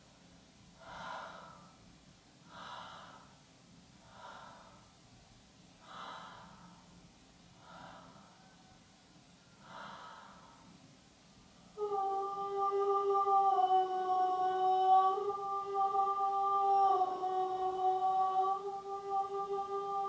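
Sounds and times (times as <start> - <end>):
faint slow breaths: 0.0 - 11.8.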